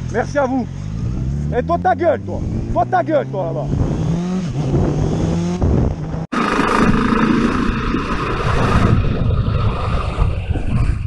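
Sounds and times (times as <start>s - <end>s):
wind rushing over microphone: 3.4s - 11.0s
motorcycle engine running: 3.6s - 9.3s.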